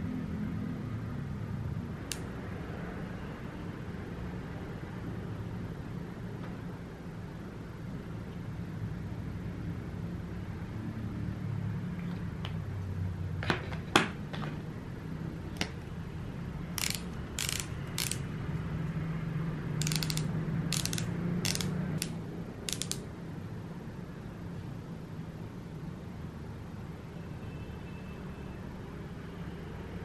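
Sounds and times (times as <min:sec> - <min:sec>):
sharp plastic clicks: 0:02.0 - 0:02.3, 0:16.8 - 0:18.3, 0:19.8 - 0:23.1
ratcheting clicks of twist mechanism: 0:16.7 - 0:18.3, 0:19.8 - 0:23.1.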